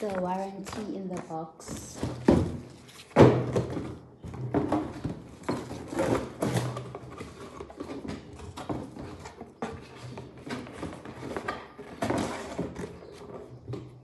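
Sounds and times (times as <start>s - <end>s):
paper and plastic rustling: 0.0s - 3.2s.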